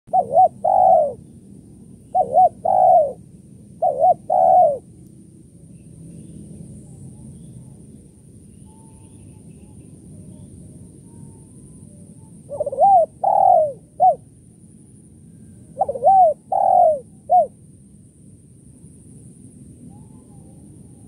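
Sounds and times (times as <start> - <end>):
dove cooing: 0.1 - 1.3, 2.0 - 3.2, 3.8 - 4.9, 12.5 - 14.3, 15.7 - 17.6
faint low hum: 0.1 - 21.0.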